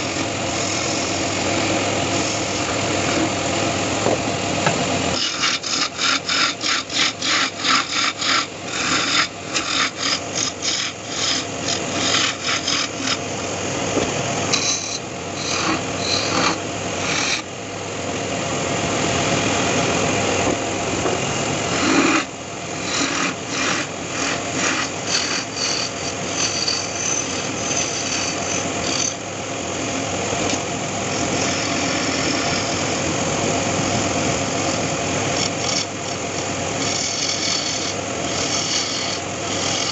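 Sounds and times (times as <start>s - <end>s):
lathe chisel scraping spinning wood: 0.0s - 17.5s, 20.4s - 29.2s, 30.4s - 39.9s.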